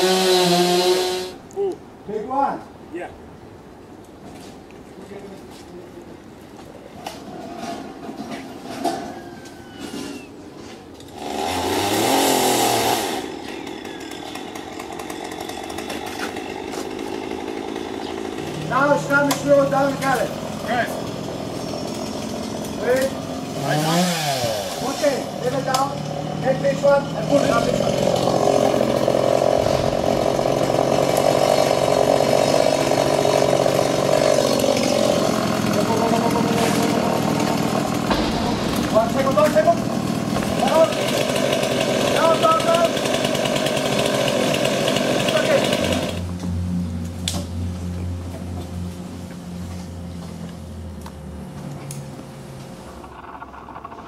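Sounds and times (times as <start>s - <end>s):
chainsaw revving and running: 0.0s - 1.4s, 11.1s - 46.9s.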